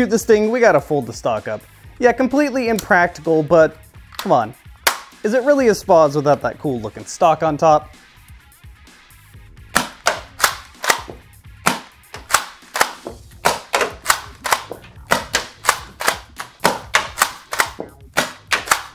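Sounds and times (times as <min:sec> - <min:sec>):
toy blaster pumped and fired: 0:09.8 - 0:18.9.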